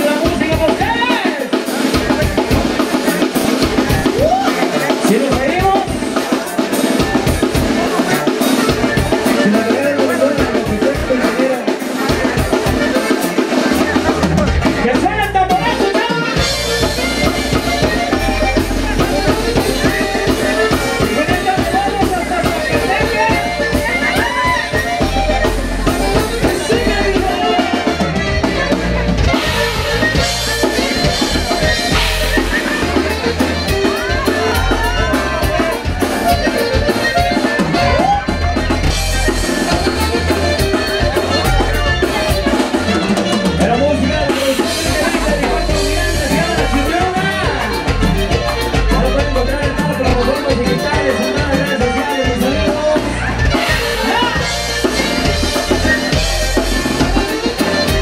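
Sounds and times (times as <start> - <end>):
bass guitar: 0.0 - 58.0
button accordion: 0.0 - 58.0
drum kit: 0.0 - 58.0
electric guitar: 0.0 - 58.0
saxophone: 22.6 - 48.8.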